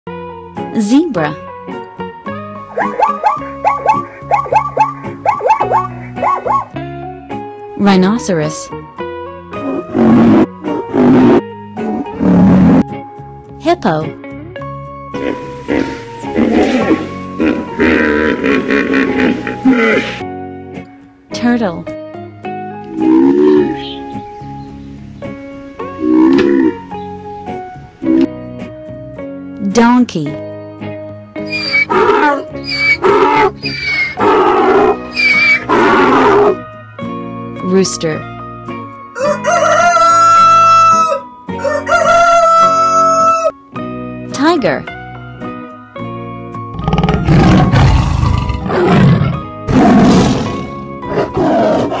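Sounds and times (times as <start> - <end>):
plucked string and keyboard music: 0.1 - 52.0
tiger roaring and growling: 9.6 - 12.8, 15.1 - 20.2, 22.9 - 23.8, 25.9 - 26.8, 31.5 - 36.6, 46.7 - 52.0.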